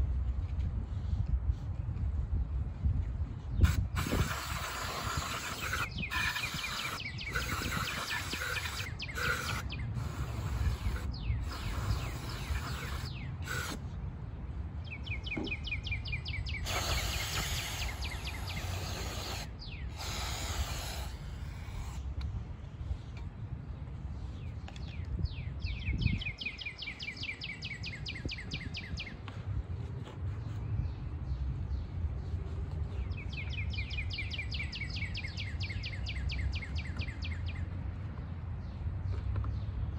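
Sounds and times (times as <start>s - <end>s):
aerosol spray can hissing: 3.6s - 13.8s, 16.6s - 22.0s.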